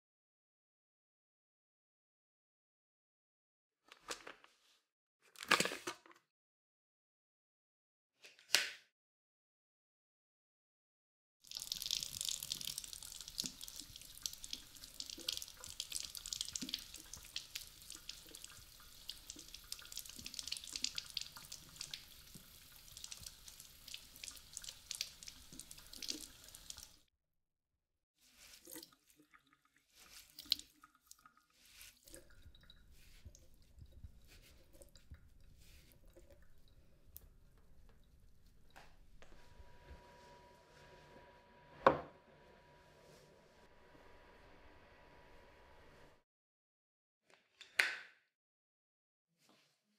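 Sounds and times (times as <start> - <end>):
water dripping: 11.4 - 27.1, 28.4 - 39.4
tap water running over brush: 11.5 - 27.1, 28.4 - 39.4.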